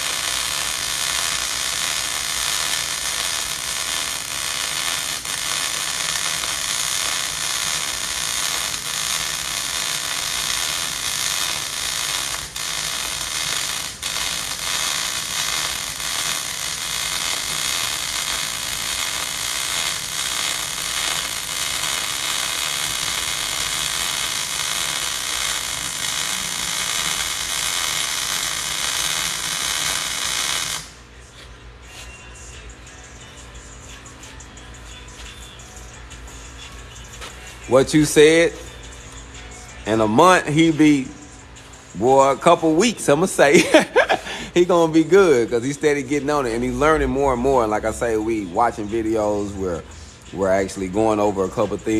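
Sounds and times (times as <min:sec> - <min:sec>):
welding arc crackling: 0:00.0 - 0:31.0, 0:37.2 - 0:38.6, 0:39.9 - 0:41.1, 0:41.9 - 0:49.5.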